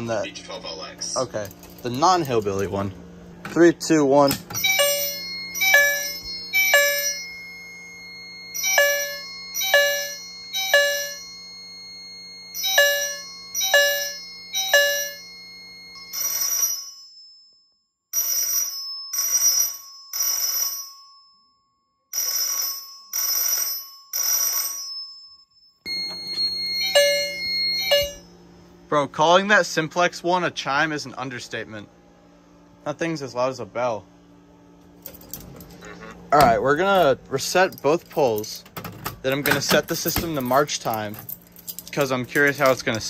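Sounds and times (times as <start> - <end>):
steady hum: 0.0 - 16.2, 25.9 - 43.0
buzzing vibrating alarm chime: 1.6 - 33.3, 34.2 - 38.6
fire alarm chimes ringing: 4.4 - 21.5, 22.1 - 28.4.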